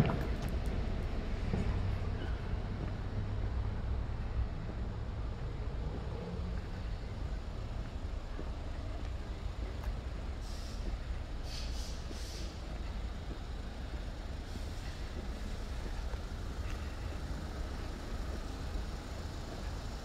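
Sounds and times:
motor vehicle rumble: 0.0s - 20.0s
short hissing: 10.4s - 10.8s, 11.4s - 12.6s.

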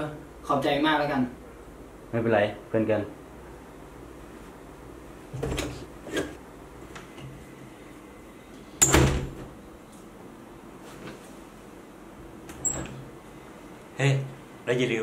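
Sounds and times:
door banging shut: 8.8s - 9.5s.

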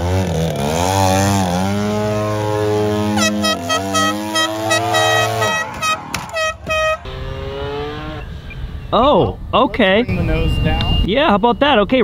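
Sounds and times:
rapid warning beeps: 10.0s - 11.7s.

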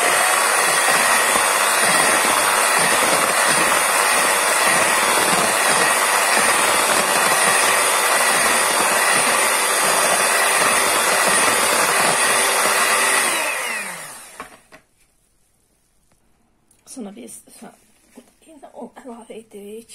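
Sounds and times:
motor winding down: 0.0s - 14.7s
electric hand mixer whisking batter: 0.0s - 14.8s.

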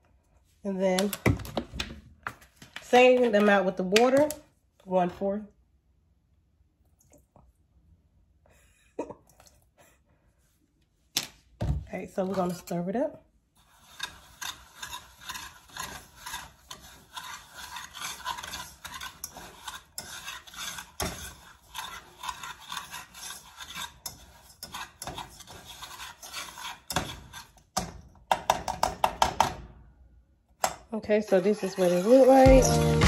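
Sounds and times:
whisk scraping a pot: 12.2s - 28.0s, 31.0s - 33.0s.

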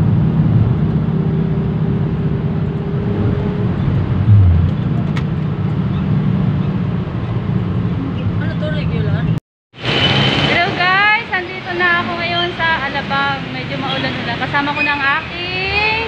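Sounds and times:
engine and road rumble: 0.0s - 15.9s
low thump: 4.3s - 5.2s.

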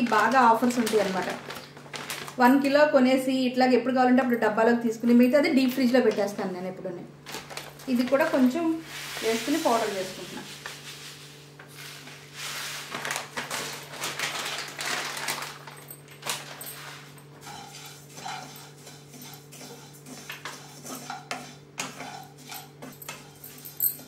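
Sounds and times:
spatula scraping a pan: 17.4s - 23.4s.

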